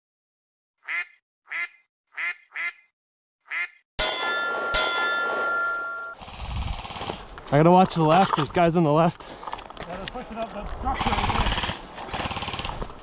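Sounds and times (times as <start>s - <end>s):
duck quacking: 0.8s - 3.8s
ringing metallic clang: 4.0s - 6.2s.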